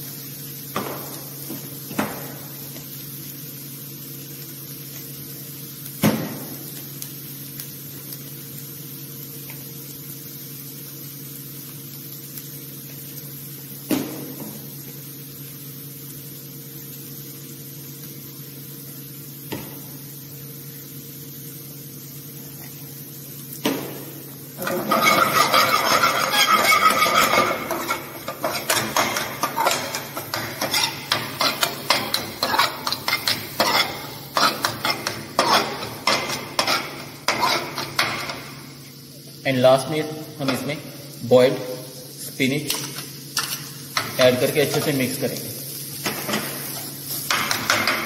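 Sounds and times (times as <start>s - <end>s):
ladle scraping metal pan: 24.6s - 36.0s, 36.6s - 37.9s.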